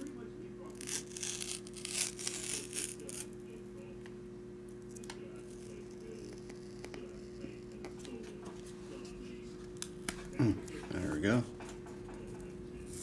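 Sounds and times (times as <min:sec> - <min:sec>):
low steady hum: 0:00.0 - 0:13.0
paper strip ripping: 0:00.7 - 0:03.4.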